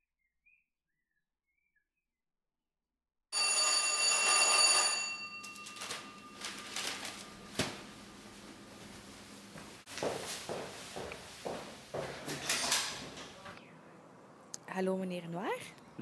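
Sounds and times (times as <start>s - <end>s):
doorbell ringing: 3.3s - 7.5s
newspaper rustling: 5.4s - 9.0s
newspaper set down tap: 6.8s - 7.9s.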